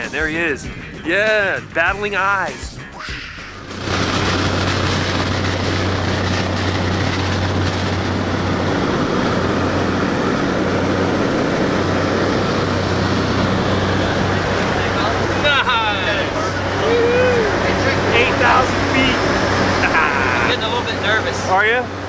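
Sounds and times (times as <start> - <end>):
propeller plane engine drone: 0.0 - 22.0
rush of air: 3.3 - 15.3.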